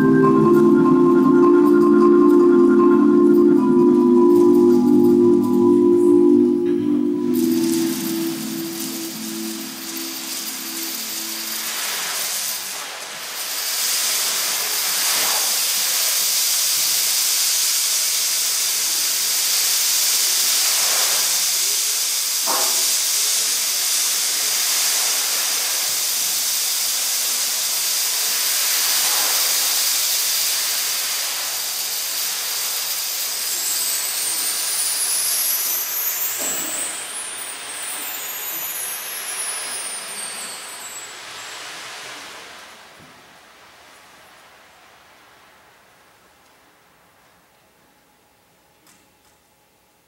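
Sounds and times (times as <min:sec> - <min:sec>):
high whistling glides: 0:00.0 - 0:12.8, 0:32.8 - 0:42.8
percussion hissing wash: 0:00.0 - 0:47.9.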